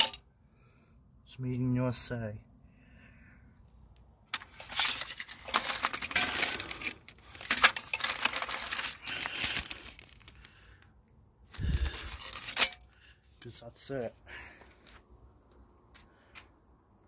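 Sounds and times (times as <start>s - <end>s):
metal hardware clinking: 0.0s - 0.2s, 12.0s - 12.9s
paper crinkling: 4.4s - 10.6s
plastic bag rustling: 4.5s - 10.4s.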